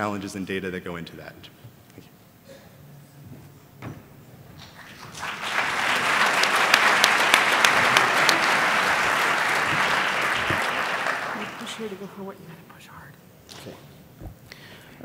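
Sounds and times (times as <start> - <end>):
audience applauding: 4.6 - 12.2.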